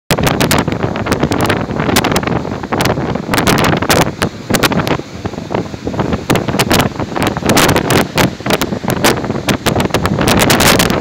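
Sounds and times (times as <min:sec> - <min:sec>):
wind buffeting microphone: 0:00.1 - 0:11.0.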